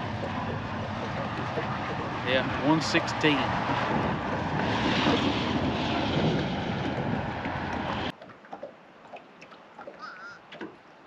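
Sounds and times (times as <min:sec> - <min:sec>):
wind buffeting microphone: 0:00.0 - 0:08.2.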